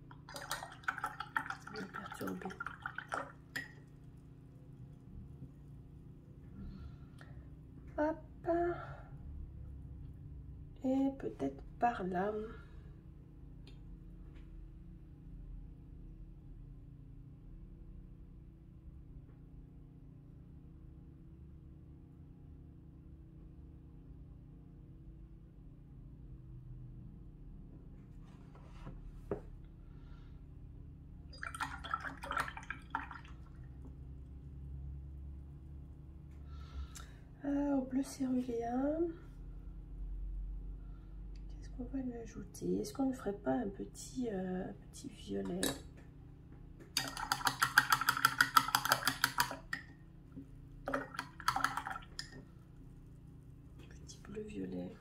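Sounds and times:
brush clicking on ceramic palette: 0:46.9 - 0:49.9, 0:50.9 - 0:52.4
rapid light clicks and splashes: 0:46.9 - 0:49.9, 0:50.8 - 0:52.5.

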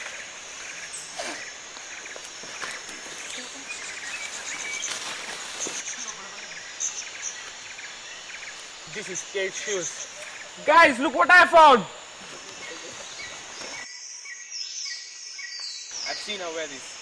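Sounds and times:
leaves rustling in undergrowth: 0:00.0 - 0:10.6
insect hum: 0:00.0 - 0:17.0.

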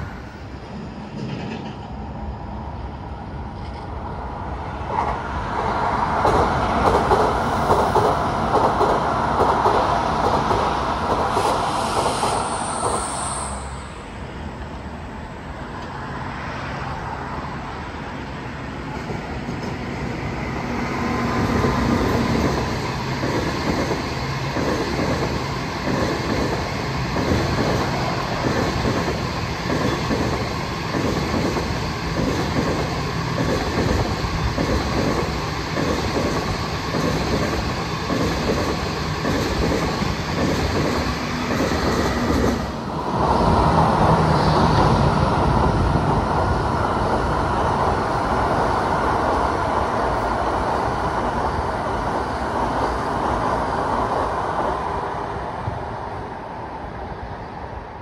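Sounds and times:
steady rush of train noise: 0:00.0 - 0:58.0
train wheels beating rhythmically: 0:05.6 - 0:13.0, 0:20.6 - 0:46.4.

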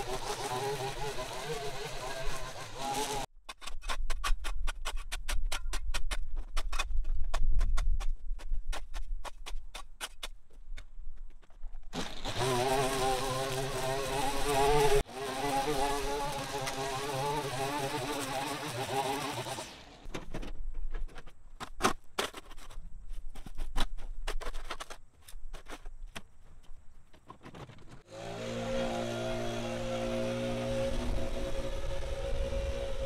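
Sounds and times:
small engine running: 0:00.0 - 0:03.3, 0:12.0 - 0:20.1, 0:28.1 - 0:33.0.

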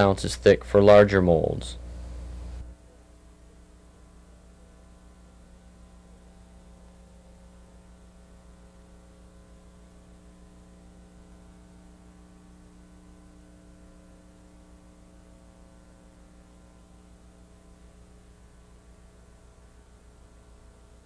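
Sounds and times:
faint hiss: 0:00.0 - 0:03.0
electrical mains hum: 0:00.0 - 0:21.0.

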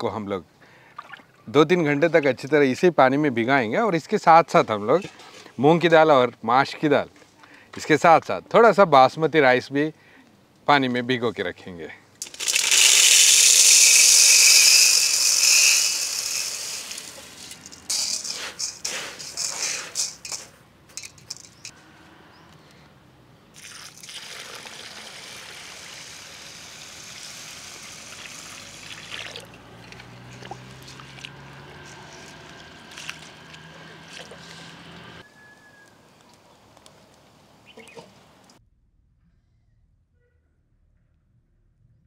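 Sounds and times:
grains poured into steel bowl: 0:12.2 - 0:20.5
water pouring into bowl: 0:23.6 - 0:26.2, 0:27.2 - 0:30.4.

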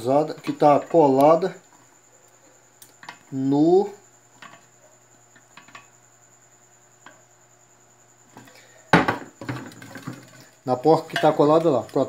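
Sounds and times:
pot rattling: 0:09.4 - 0:12.0.

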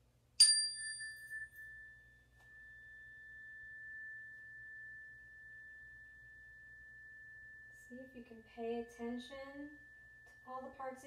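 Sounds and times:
meditation bell ringing: 0:00.4 - 0:11.0.

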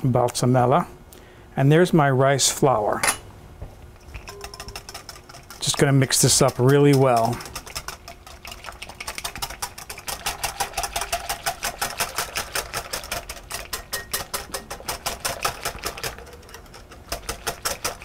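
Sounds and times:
whisk ticking against glass bowl: 0:04.1 - 0:18.0.

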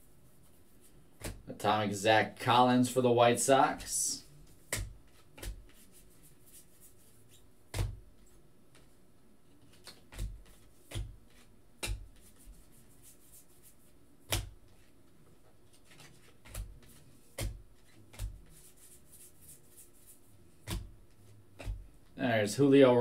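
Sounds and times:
faint room noise: 0:00.0 - 0:23.0.

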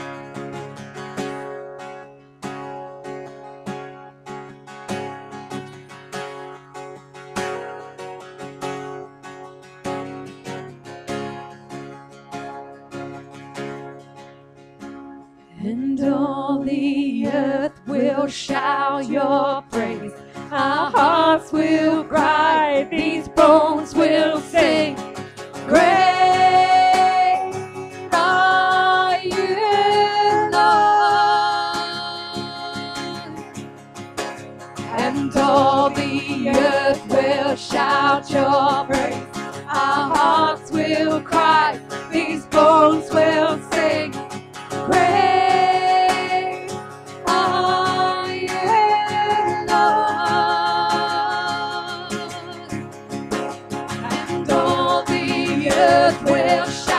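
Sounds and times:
strummed acoustic guitar: 0:00.0 - 0:56.9
women singing worship song: 0:15.6 - 0:33.4, 0:34.9 - 0:44.2, 0:44.8 - 0:52.7, 0:54.0 - 0:56.9.

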